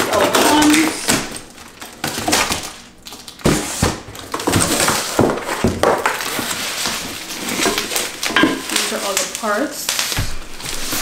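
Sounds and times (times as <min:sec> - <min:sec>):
bubble wrap crinkling: 0:00.0 - 0:11.0
cardboard scraping and rustling: 0:03.4 - 0:08.9, 0:09.9 - 0:11.0.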